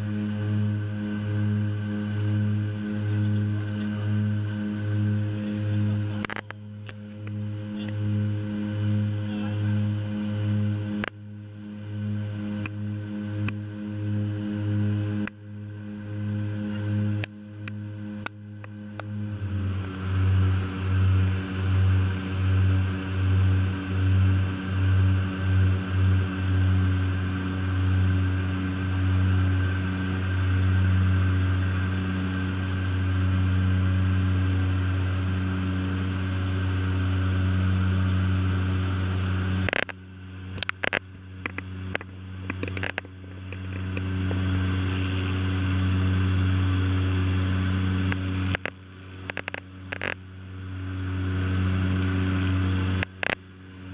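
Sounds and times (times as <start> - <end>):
propeller drone in cabin: 0.0 - 53.9
sharp clicks and knocks: 39.6 - 44.1, 48.1 - 50.2, 53.0 - 53.4.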